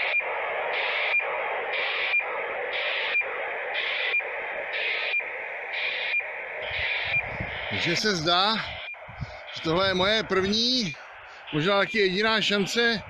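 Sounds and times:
radio data bursts: 0.0 - 13.0
radio receiver hiss: 0.0 - 13.0.

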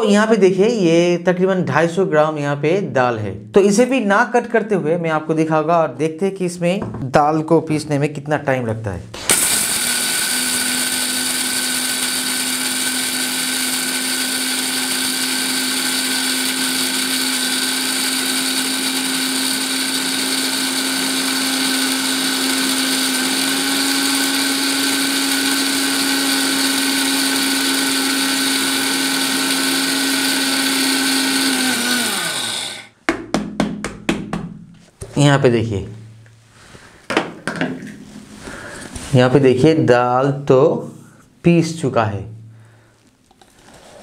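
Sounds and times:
grainy grinding noise: 9.2 - 32.9, 43.0 - 44.0
mixer grinder motor whine: 9.2 - 33.0.

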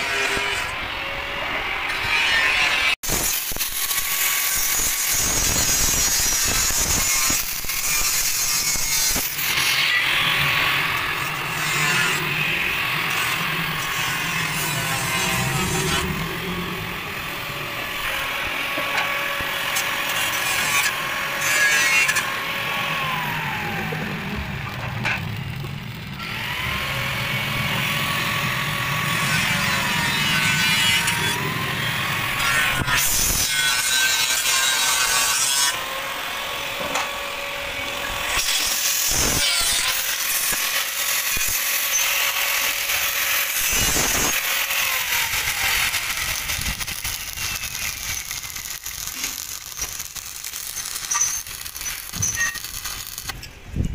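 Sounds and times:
welding arc crackling: 3.0 - 22.3, 38.0 - 53.5.

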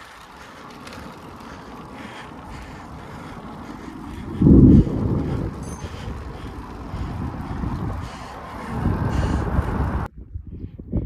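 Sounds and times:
low wind buffeting blast: 0.0 - 11.0
wind on microphone: 3.7 - 11.0.

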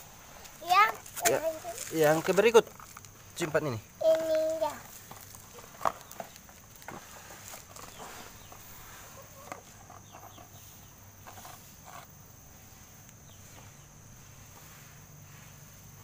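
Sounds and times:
chickens clucking: 6.9 - 10.7.

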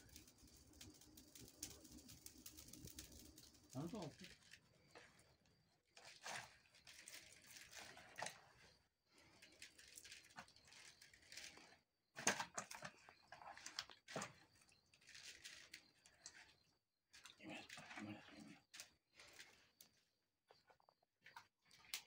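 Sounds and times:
salt grains pattering into basin: 0.0 - 4.3.

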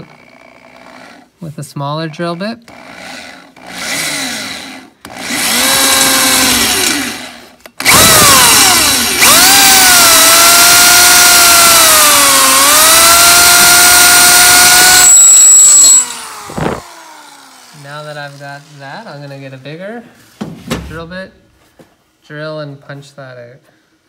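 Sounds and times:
electric drill drilling metal: 2.7 - 18.8.

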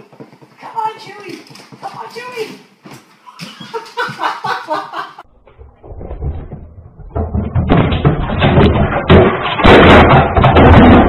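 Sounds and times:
clattering knocks and thumps: 2.8 - 11.0.

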